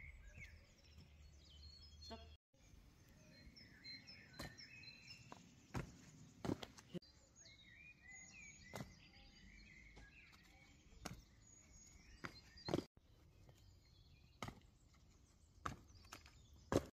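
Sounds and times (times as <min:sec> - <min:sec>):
footsteps on concrete steps: 0:04.4 - 0:07.0, 0:09.9 - 0:13.7, 0:14.3 - 0:17.0.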